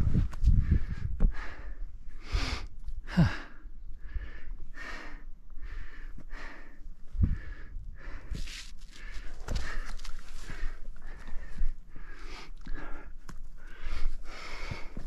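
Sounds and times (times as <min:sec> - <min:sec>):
dull low thumps: 0:00.0 - 0:01.8, 0:07.1 - 0:08.2
person breathing hard: 0:00.2 - 0:15.0.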